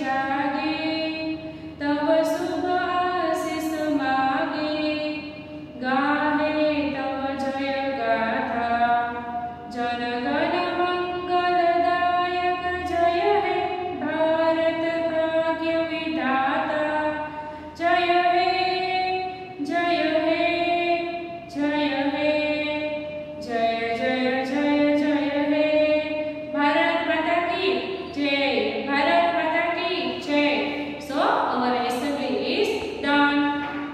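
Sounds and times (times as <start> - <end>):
woman singing: 0.0 - 33.9
singer breathing: 1.4 - 1.8, 17.3 - 17.8.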